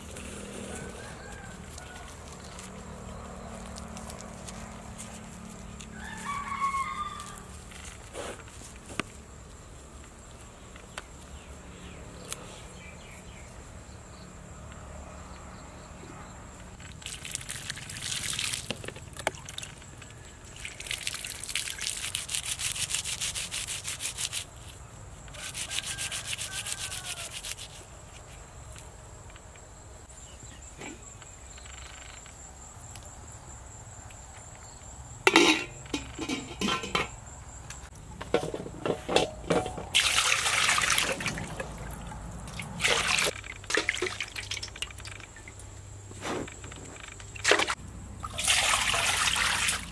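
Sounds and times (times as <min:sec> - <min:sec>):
hands rubbing plant material: 0:01.4 - 0:09.1, 0:21.3 - 0:24.8, 0:25.4 - 0:28.4
water splashing in a steel basin: 0:16.8 - 0:22.9, 0:39.2 - 0:45.8, 0:47.3 - 0:49.9.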